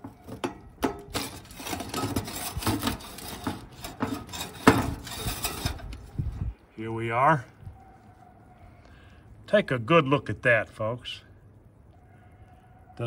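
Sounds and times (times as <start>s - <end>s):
pizza scraping across wire rack: 0.0s - 6.1s.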